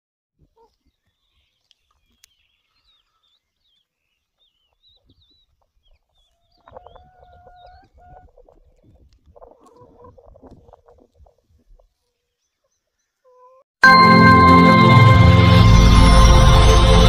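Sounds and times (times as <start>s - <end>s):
hens clucking: 0.4s - 1.1s, 4.7s - 12.3s.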